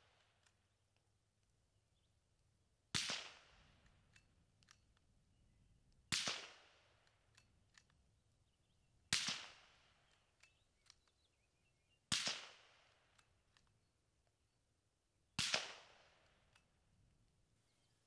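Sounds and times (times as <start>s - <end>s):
suppressed rifle shots: 2.9s - 4.8s, 6.0s - 7.9s, 9.0s - 10.9s, 12.1s - 13.4s, 15.4s - 16.7s.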